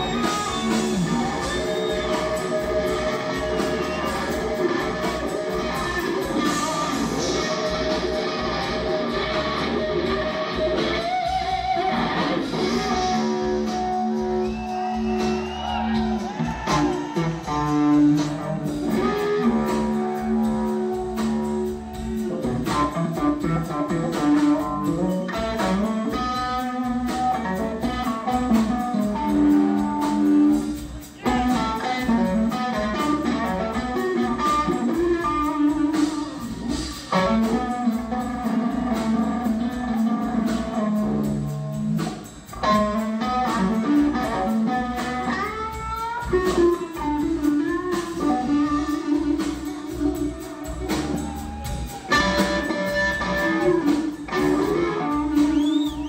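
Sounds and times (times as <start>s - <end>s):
electric guitar bending notes: 0.0s - 15.3s, 31.2s - 55.8s
bass guitar: 0.0s - 56.0s
drums: 0.0s - 56.0s.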